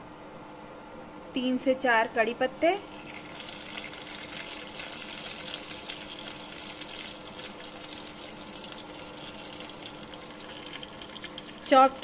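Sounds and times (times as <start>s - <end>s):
faint electric cooktop hum: 0.0s - 12.0s
spices sizzling in hot oil: 2.6s - 12.0s.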